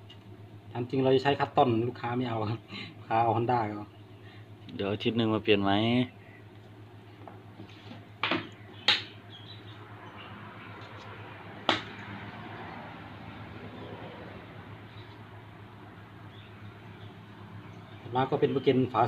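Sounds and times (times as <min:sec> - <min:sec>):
sharp knocks: 0:08.2 - 0:09.2, 0:11.6 - 0:12.0.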